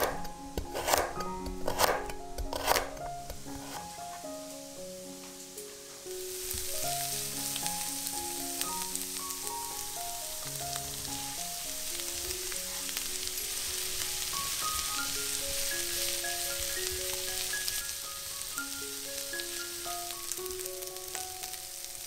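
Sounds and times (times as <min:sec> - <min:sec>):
plastic spatula stirring: 0:00.0 - 0:03.9
onions sizzling in hot oil: 0:03.3 - 0:22.0.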